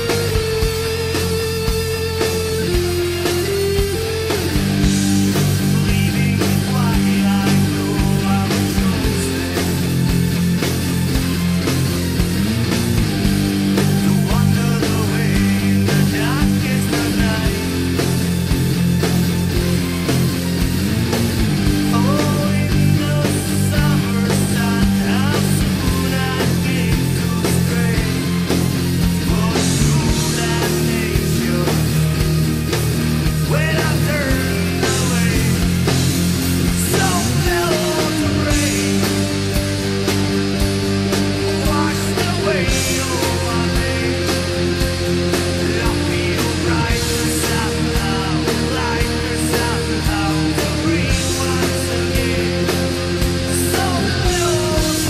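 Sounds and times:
electric guitar lead notes: 0:00.0 - 0:55.0
heavy rock band playing: 0:00.0 - 0:55.0.

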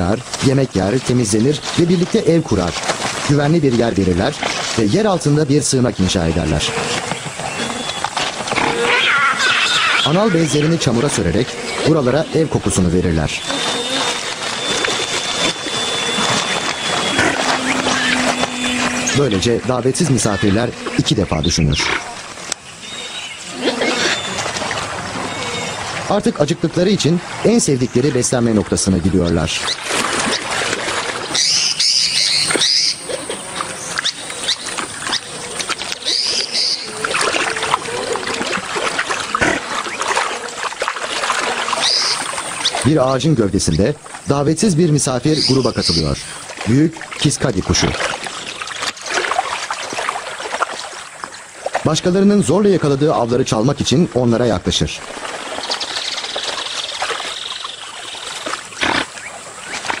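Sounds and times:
otters crunching fish in water: 0:00.0 - 0:22.7, 0:27.8 - 1:00.0
otter wavering call: 0:06.4 - 0:24.6, 0:25.2 - 0:26.0, 0:31.1 - 0:38.6, 0:41.4 - 0:43.0, 0:45.1 - 0:46.5
bird calling high notes: 0:06.5 - 0:24.5, 0:25.2 - 0:26.4, 0:31.2 - 0:38.4, 0:41.5 - 0:42.9, 0:45.2 - 0:46.5
high buzz: 0:11.5 - 0:21.9.

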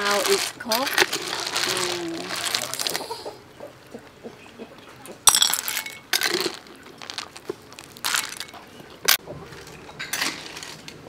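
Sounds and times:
snail shells clattering into bowl: 0:00.0 - 0:03.1, 0:05.2 - 0:09.2, 0:10.0 - 0:11.0.

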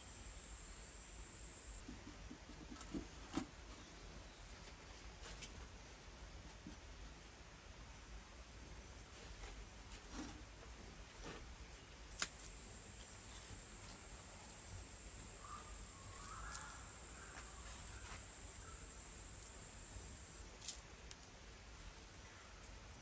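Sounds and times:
high-pitched insect trill: 0:00.0 - 0:01.8, 0:12.1 - 0:20.4.

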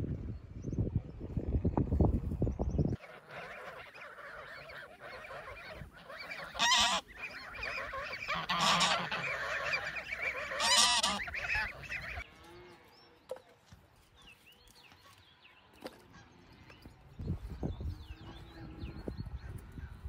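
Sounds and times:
geese honking: 0:03.0 - 0:12.3.

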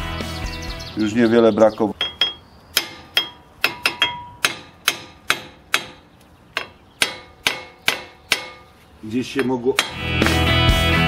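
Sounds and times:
hammer striking metal disc: 0:02.0 - 0:08.8, 0:09.4 - 0:10.4.

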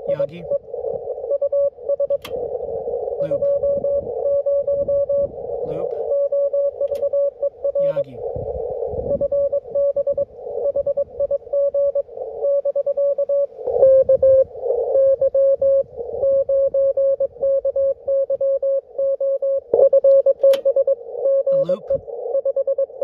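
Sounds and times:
radio band hiss: 0:00.0 - 0:04.5, 0:05.2 - 0:06.1, 0:07.5 - 0:11.2, 0:21.0 - 0:22.4
morse code tone: 0:00.0 - 0:23.0.

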